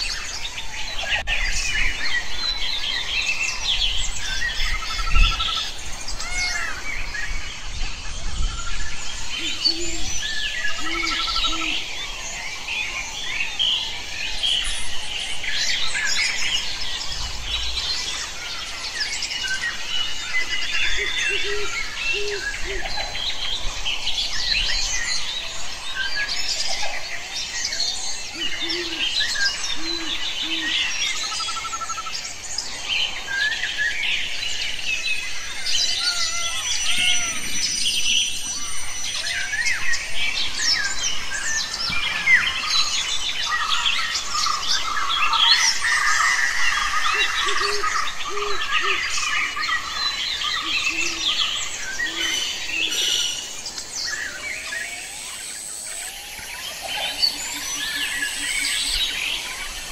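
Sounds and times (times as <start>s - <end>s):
forest birds chirping and singing: 0.0s - 59.9s
bird low hoots: 9.4s - 11.8s, 35.9s - 37.8s.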